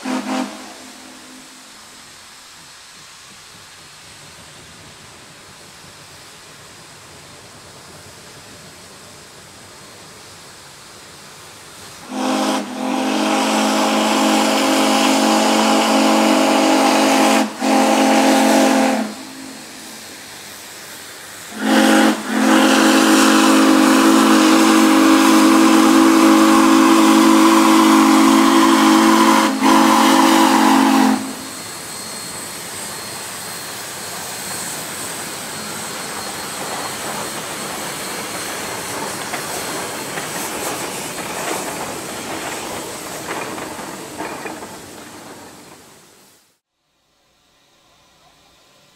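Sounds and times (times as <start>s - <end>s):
steam locomotive whistle blasts: 0.0s - 2.1s, 12.0s - 20.1s, 21.5s - 37.2s
locomotive steam hiss: 0.0s - 48.9s.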